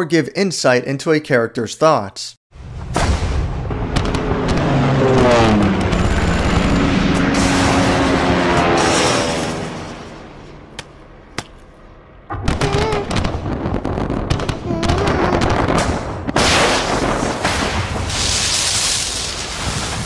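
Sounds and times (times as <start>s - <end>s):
loud rushing blast: 2.5s - 11.2s, 12.3s - 18.5s
sharp gunfire cracks: 2.9s - 4.7s, 10.8s - 18.5s
aircraft engine: 3.6s - 11.1s
crackle of shell bursts: 12.4s - 20.0s.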